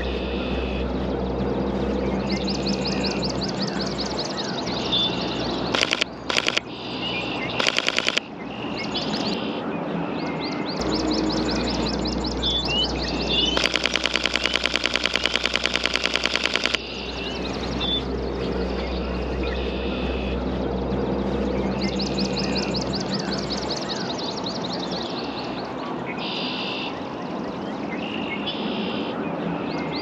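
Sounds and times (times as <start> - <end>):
birds chirping: 2.1 - 9.5, 10.2 - 20.3
camera shutter firing in bursts: 5.8 - 6.7, 7.6 - 8.2, 13.6 - 16.9.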